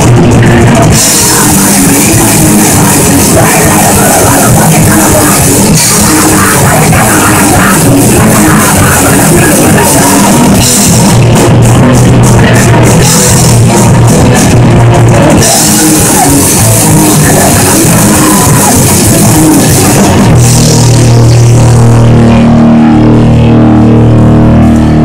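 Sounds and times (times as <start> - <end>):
heavy rock band playing: 0.0 - 25.0
person shouting vocals: 1.2 - 10.6, 15.4 - 19.4.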